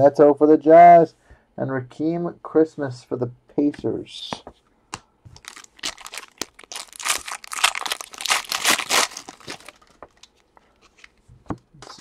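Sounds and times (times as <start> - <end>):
card pack wrappers crinkling: 5.4 - 11.2.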